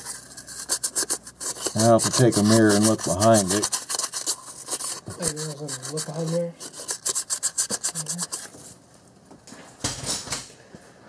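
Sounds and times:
sandpaper rubbing: 0:00.0 - 0:08.7.

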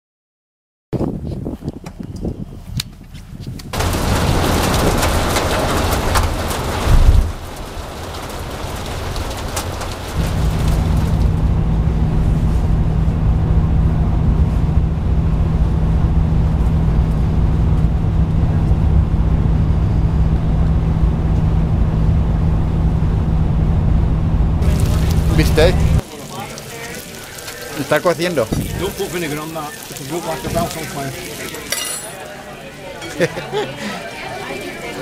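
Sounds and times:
heavy rain on a car: 0:03.8 - 0:21.1, 0:24.6 - 0:31.7
vehicle droning on road: 0:08.4 - 0:26.0.

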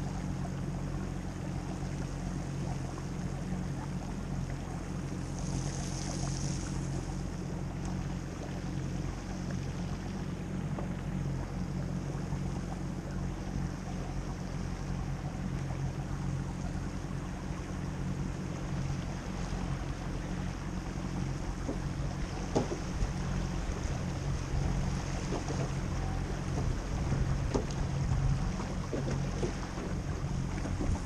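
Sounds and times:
outboard motor running: 0:00.0 - 0:31.0
water around hull: 0:00.0 - 0:31.0
wind on microphone: 0:18.9 - 0:31.0.

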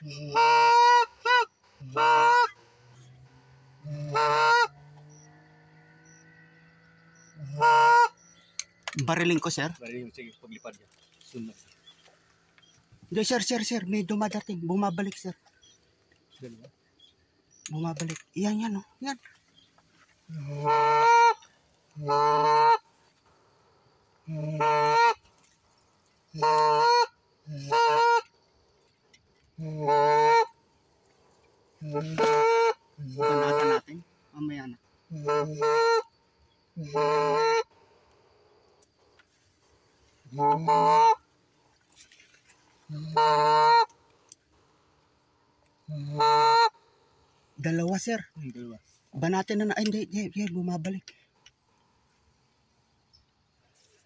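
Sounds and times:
goose honking: 0:00.0 - 0:09.1, 0:20.3 - 0:23.0, 0:24.3 - 0:25.2, 0:26.3 - 0:28.3, 0:29.6 - 0:30.6, 0:31.8 - 0:34.0, 0:35.1 - 0:36.1, 0:36.8 - 0:37.7, 0:40.3 - 0:41.2, 0:42.9 - 0:44.0, 0:45.9 - 0:46.8.

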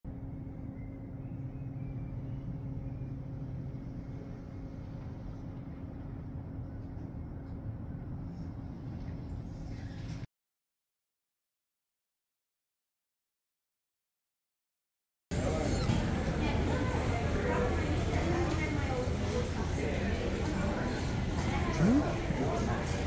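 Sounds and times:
ship engines droning: 0:00.1 - 0:06.8, 0:21.5 - 0:22.8.

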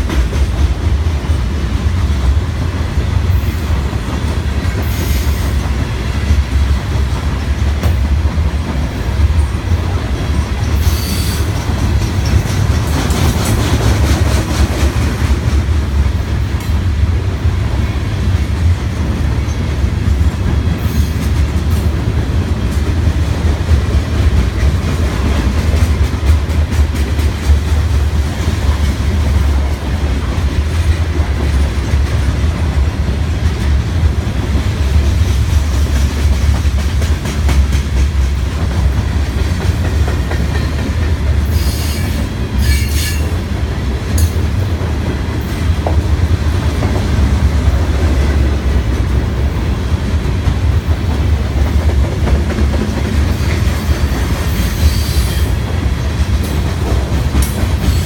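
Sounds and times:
freight train rumbling past: 0:00.0 - 0:58.0
train wheels clacking: 0:00.0 - 0:58.0.

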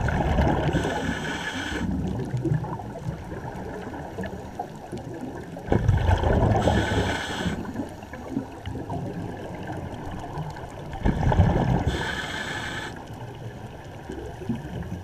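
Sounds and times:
exhaled bubbles burbling: 0:00.0 - 0:12.6
regulator inhalation hiss: 0:00.7 - 0:01.9, 0:06.6 - 0:07.7, 0:11.9 - 0:13.0.

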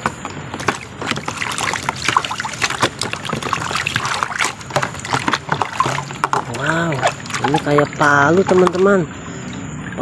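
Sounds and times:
water splashing in a plastic basin: 0:00.0 - 0:10.0.

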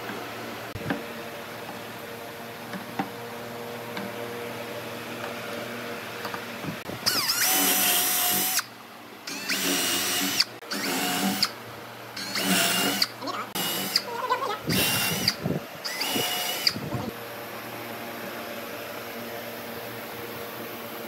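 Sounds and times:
power drill boring into wood: 0:07.0 - 0:08.7, 0:09.3 - 0:11.5, 0:12.2 - 0:14.1, 0:14.7 - 0:16.9.

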